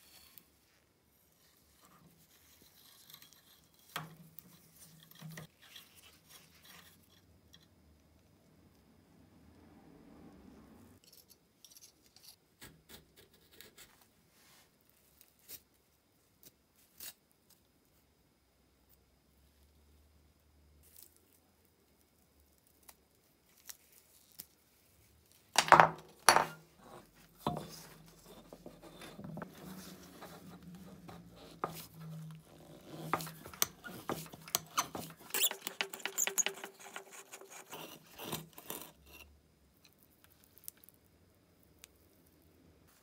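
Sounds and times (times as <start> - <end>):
screwdriver scraping metal disc: 27.5 - 39.3.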